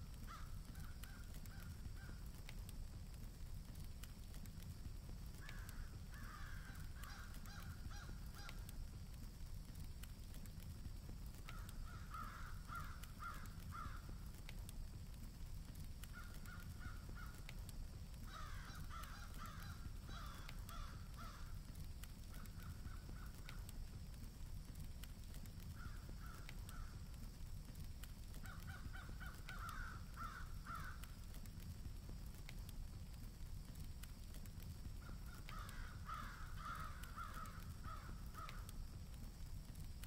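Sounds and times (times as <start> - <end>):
crows cawing: 0.2 - 2.2, 5.4 - 8.8, 11.4 - 14.2, 16.1 - 17.5, 18.2 - 23.7, 25.7 - 27.1, 28.4 - 31.2, 35.0 - 38.8.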